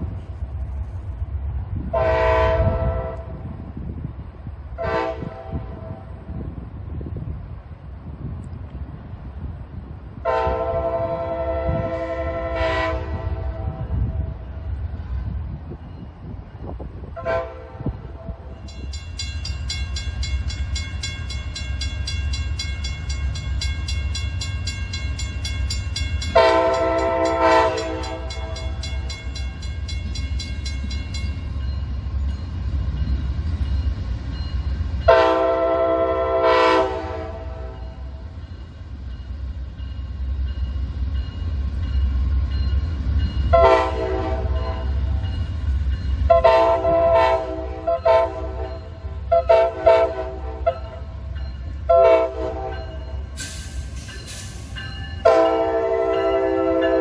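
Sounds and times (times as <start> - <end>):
diesel locomotive rumble: 0.0 - 57.0
locomotive air horn blasts: 1.9 - 3.4, 4.8 - 6.1, 10.2 - 14.3, 17.1 - 18.5, 26.3 - 28.8, 35.1 - 38.0, 43.5 - 45.0, 46.3 - 51.1, 51.9 - 53.1, 55.2 - 57.0.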